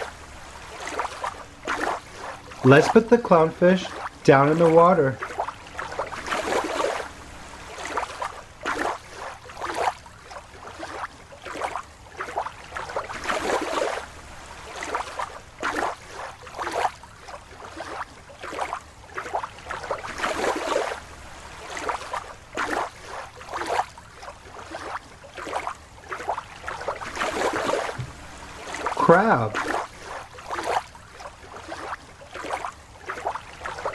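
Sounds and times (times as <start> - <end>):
water sloshing and splashing: 0.0 - 33.9.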